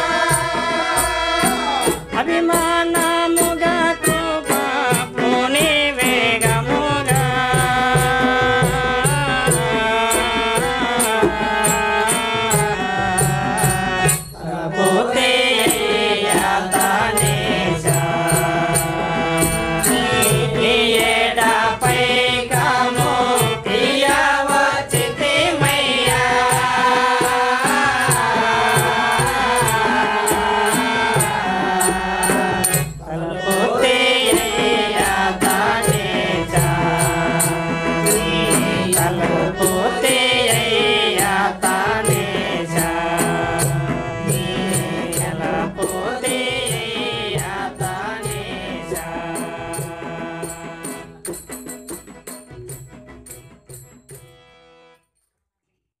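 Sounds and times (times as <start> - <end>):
devotional group singing: 0.0 - 51.2
sharp high-pitched percussion beat: 0.0 - 54.5.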